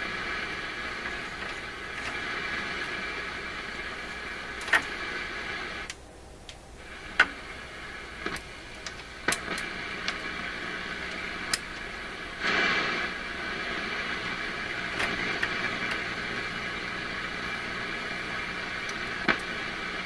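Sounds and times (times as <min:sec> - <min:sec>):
shortwave radio hissing: 0:00.0 - 0:20.0
sharp clicks: 0:04.6 - 0:05.0.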